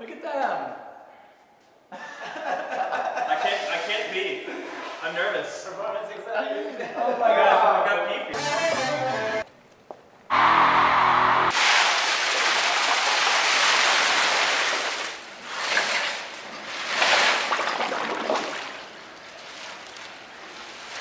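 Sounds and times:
water churning and bubbling: 0:11.9 - 0:20.9.

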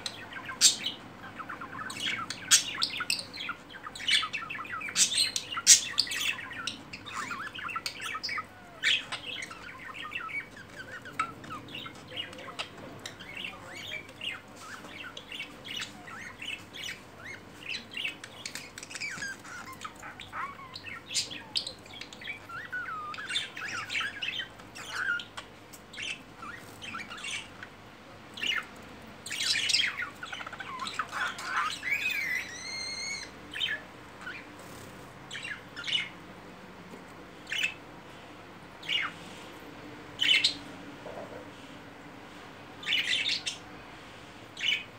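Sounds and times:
budgerigars chirping: 0:00.0 - 0:36.2, 0:37.4 - 0:37.9, 0:38.8 - 0:39.2, 0:40.2 - 0:41.3, 0:42.8 - 0:43.7, 0:44.5 - 0:44.9
bird squawks: 0:29.4 - 0:34.5.

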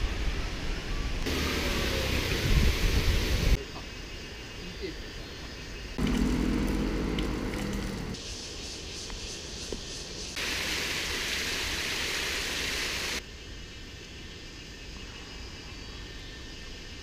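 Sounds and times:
outdoor background noise: 0:00.0 - 0:17.0
water rushing down channel: 0:10.4 - 0:13.2.

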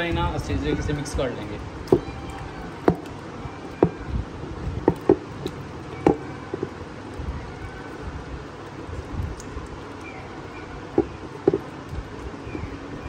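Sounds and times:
knocks and taps in a vessel: 0:11.0 - 0:11.7.

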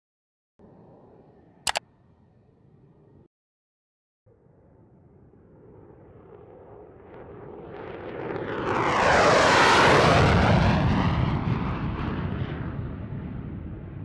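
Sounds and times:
jet engine roar on flyby: 0:05.0 - 0:14.0.

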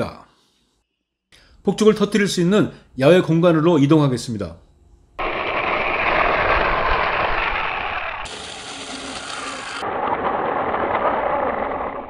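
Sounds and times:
tyres on rough asphalt: 0:05.2 - 0:12.0
toy truck motor whirring: 0:06.6 - 0:11.9.

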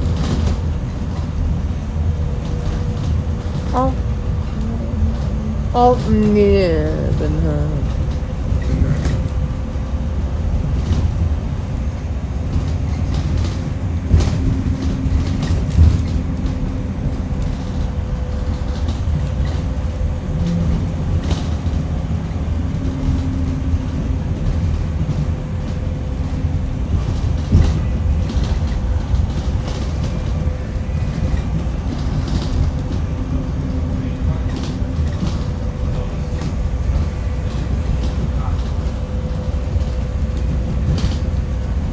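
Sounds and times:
bus body knocking and rattling: 0:00.0 - 0:41.9
bus engine and road drone: 0:00.0 - 0:41.9.

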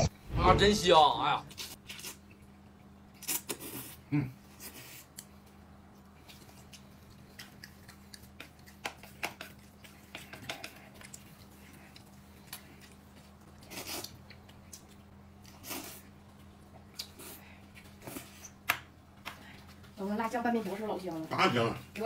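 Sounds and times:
steady low hum: 0:00.0 - 0:03.2
chewing: 0:04.6 - 0:18.6.

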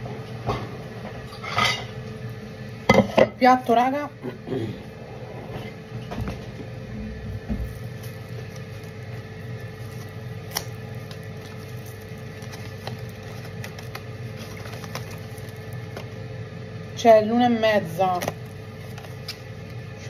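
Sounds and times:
appliance motor hum: 0:00.0 - 0:20.0.

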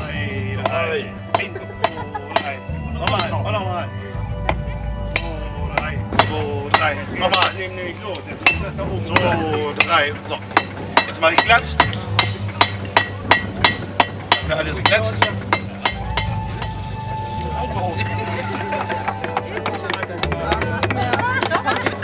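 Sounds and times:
hammer striking iron on anvil: 0:00.6 - 0:03.4, 0:04.5 - 0:07.6, 0:08.4 - 0:16.4.

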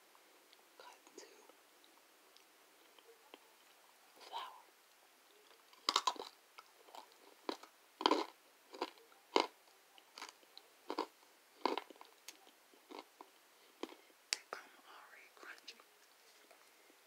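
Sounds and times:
person chewing crunchy food: 0:05.5 - 0:14.0.

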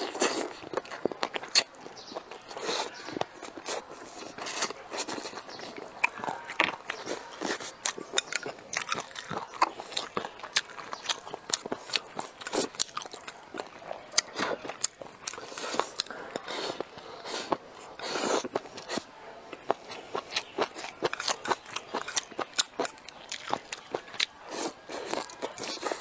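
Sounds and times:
chewing and crunching: 0:00.0 - 0:26.0.

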